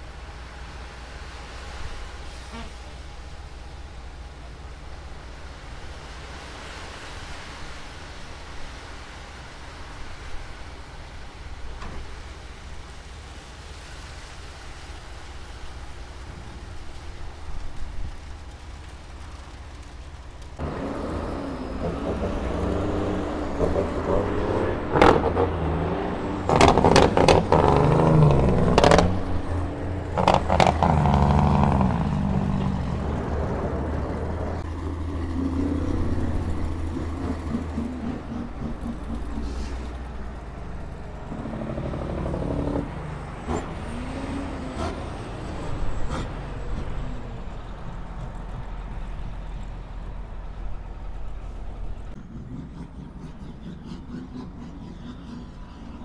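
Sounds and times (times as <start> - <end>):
diesel truck engine revving: 20.4 - 56.0.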